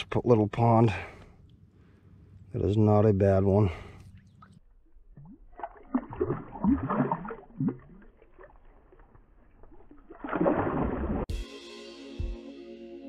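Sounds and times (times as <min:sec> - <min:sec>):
water splashing and gurgling: 0:03.7 - 0:11.3.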